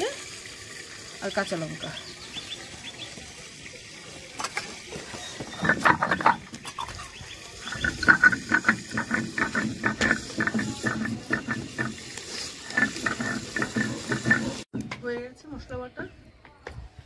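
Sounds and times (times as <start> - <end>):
stone roller grinding on stone: 5.1 - 14.7.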